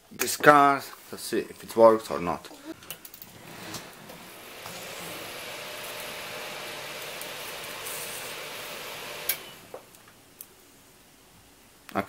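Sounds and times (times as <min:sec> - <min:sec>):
computer fans whirring: 0:03.3 - 0:10.0.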